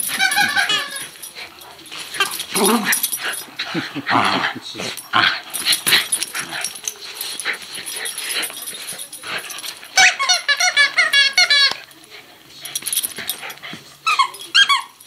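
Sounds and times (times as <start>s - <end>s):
squeak toy squeaking: 0.0s - 1.2s, 9.9s - 11.8s, 14.0s - 15.0s
dog chewing toy: 0.0s - 3.6s
rustling and shuffling: 0.0s - 15.0s.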